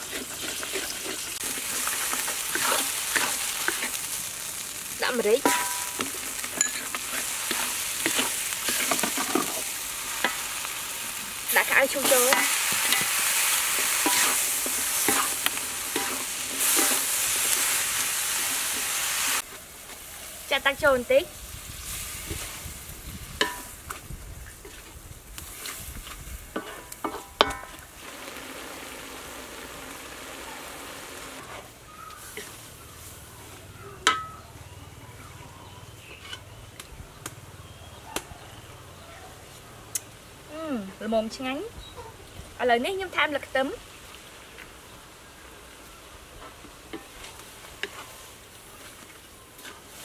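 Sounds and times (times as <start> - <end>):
spatula scraping a pan: 0.0 - 4.1, 5.4 - 10.6, 11.9 - 19.0, 25.5 - 27.8
food sizzling in a wok: 0.0 - 33.6, 40.0 - 50.0.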